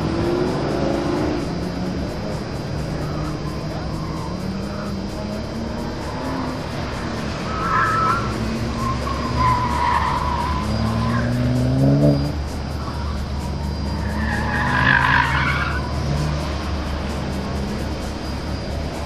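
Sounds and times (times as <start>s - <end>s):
car engine revving: 0.0s - 19.0s
tyres squealing: 2.9s - 16.2s.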